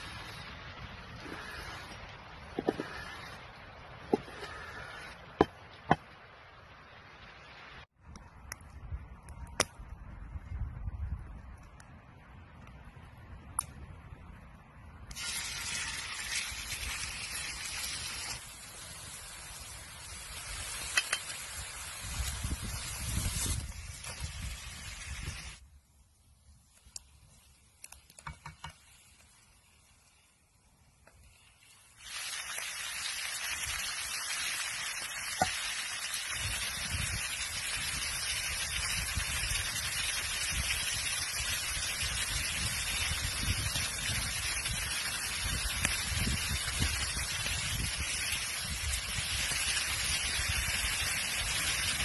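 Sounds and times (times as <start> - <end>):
chicken sizzling in hot oil: 0.0 - 2.0, 15.1 - 25.6, 31.2 - 52.0.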